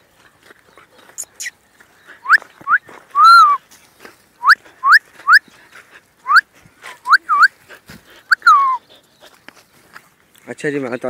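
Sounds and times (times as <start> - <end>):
small dog whining and yelping: 8.3 - 8.8.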